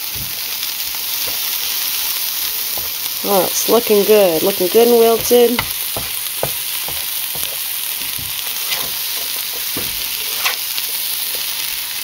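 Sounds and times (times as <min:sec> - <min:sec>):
greens sizzling in frying pan: 0:00.0 - 0:12.0
stirring scrapes and taps: 0:05.2 - 0:11.6.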